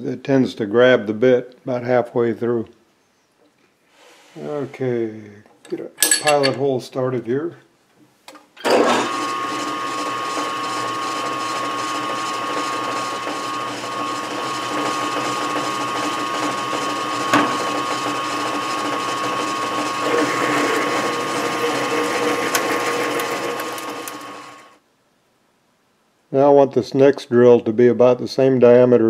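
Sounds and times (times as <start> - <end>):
drill cutting into metal: 8.6 - 24.8
metal lathe gear whine: 8.7 - 24.8.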